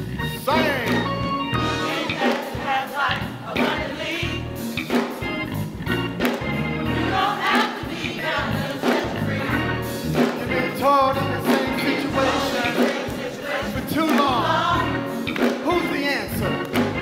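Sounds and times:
pulsing bass notes: 0.0s - 2.0s, 3.2s - 7.3s, 8.1s - 12.6s, 13.7s - 15.1s
band accompanying: 0.0s - 17.0s
gospel choir singing: 0.4s - 5.4s, 6.1s - 17.0s.

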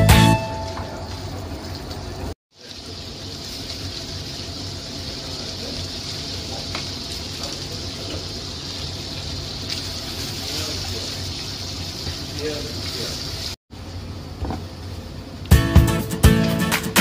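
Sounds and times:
bacon sizzling in a pan: 1.5s - 14.0s.

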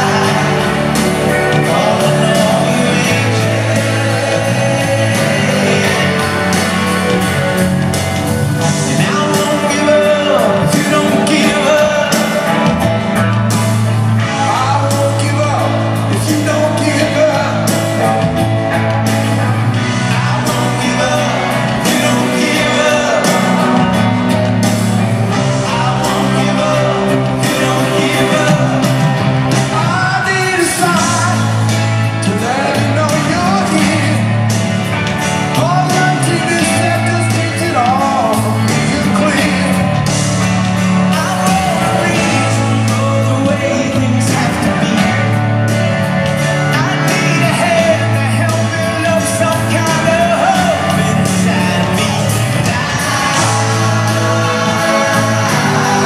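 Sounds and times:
lead vocal singing: 0.0s - 56.0s
live rock band playing: 0.0s - 56.0s.

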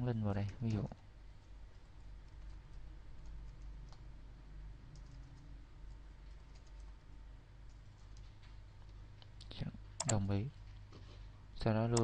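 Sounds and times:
low steady hum: 0.0s - 12.0s
computer keyboard keystrokes: 0.4s - 4.1s, 4.9s - 7.0s, 7.6s - 9.0s, 10.0s - 10.2s.

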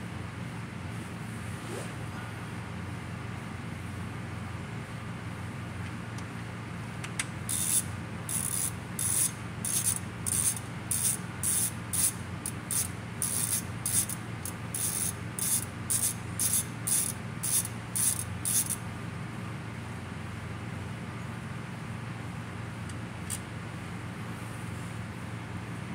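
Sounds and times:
hand ratchet clicking: 7.0s - 18.8s.

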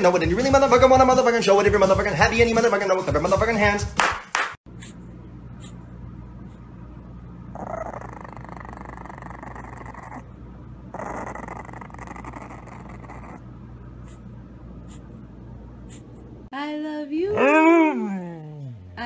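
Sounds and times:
puppy growling: 7.5s - 15.1s, 17.3s - 19.0s.

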